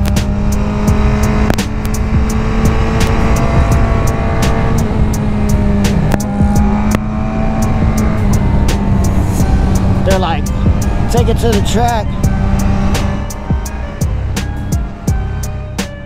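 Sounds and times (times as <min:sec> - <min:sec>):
motorcycle engine accelerating: 0:00.0 - 0:16.0
wind rumble: 0:00.0 - 0:16.0
microphone crackling clicks: 0:05.8 - 0:07.1.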